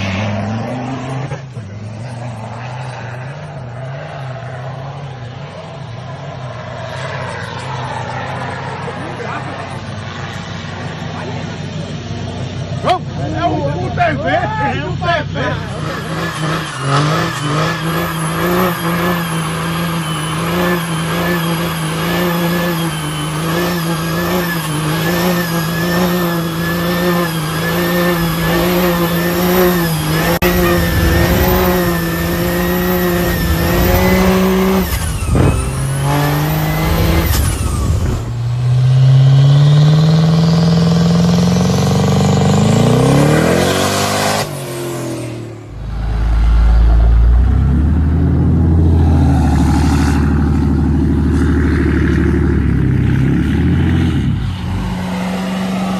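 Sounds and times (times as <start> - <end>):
engine revving up: 0.0 - 14.1, 15.0 - 55.9
diesel engine drone: 0.0 - 55.9
high whistle: 17.1 - 21.7
deep low engine rumble: 45.3 - 55.9.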